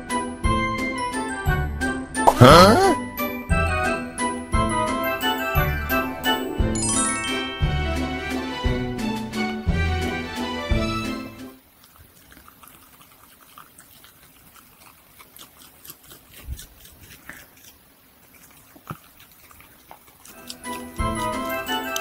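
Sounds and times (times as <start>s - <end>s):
dog chewing and licking: 11.6s - 22.0s.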